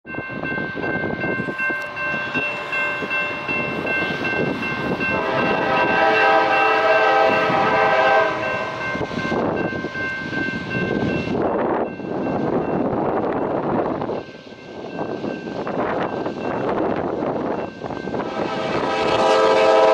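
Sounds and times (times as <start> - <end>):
crossing warning bell ringing: 0.1 - 19.9
wind on microphone: 0.1 - 19.9
locomotive air horn blast: 5.1 - 9.2, 18.2 - 19.9.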